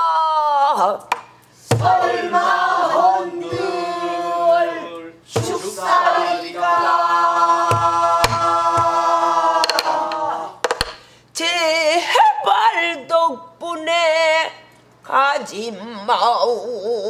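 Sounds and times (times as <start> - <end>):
voices singing together: 1.6 - 10.6
barrel drum struck with stick: 5.3 - 5.7, 7.6 - 9.0.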